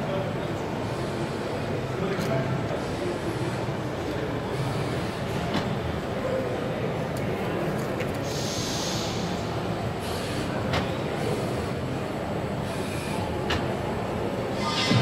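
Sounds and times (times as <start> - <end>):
busy exhibition hall din: 0.0 - 15.0
short hisses: 8.3 - 9.3.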